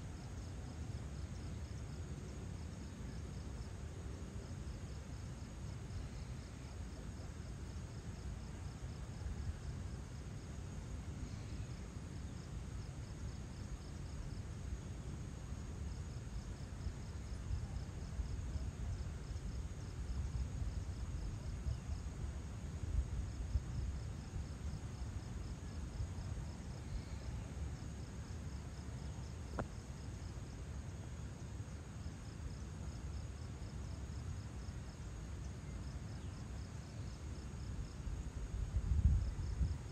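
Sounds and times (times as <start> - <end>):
insects chirping: 0.0 - 39.9
faint click: 29.5 - 29.7.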